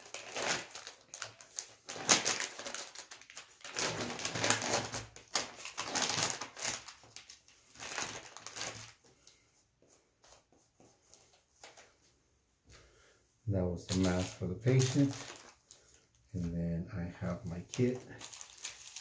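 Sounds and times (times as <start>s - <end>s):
plastic wrapper crinkling: 0.0s - 9.1s, 13.8s - 16.3s, 17.2s - 19.0s.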